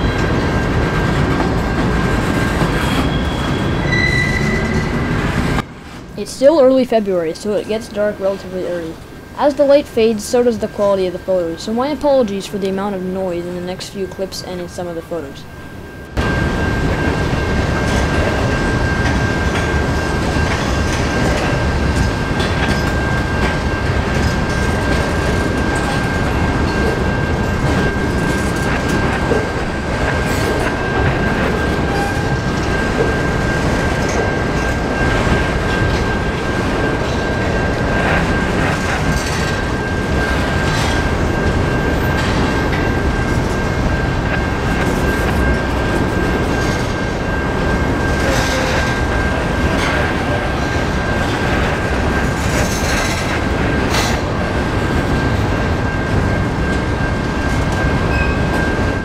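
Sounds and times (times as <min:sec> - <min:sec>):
train cars clattering over rails: 0:00.0 - 0:12.7, 0:16.2 - 0:59.0
high-pitched squeal: 0:02.1 - 0:05.6.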